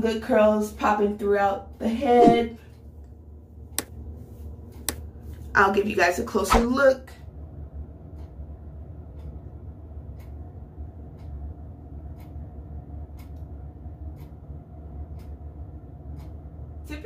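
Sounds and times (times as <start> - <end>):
steady low hum: 0.0 - 17.0
faint ticking: 7.3 - 17.0.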